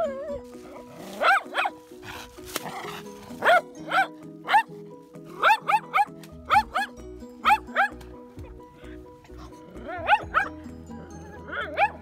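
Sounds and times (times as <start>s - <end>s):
background music: 0.0s - 12.0s
dog barking: 1.2s - 1.8s, 3.4s - 4.7s, 5.4s - 8.0s, 9.9s - 10.5s, 11.5s - 12.0s.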